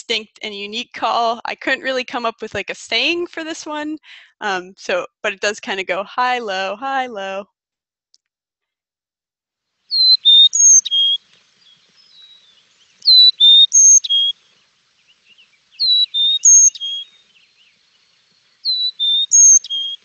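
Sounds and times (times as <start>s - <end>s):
chickadee whistled song: 9.9s - 11.2s, 12.0s - 14.4s, 15.8s - 17.2s, 18.6s - 20.0s.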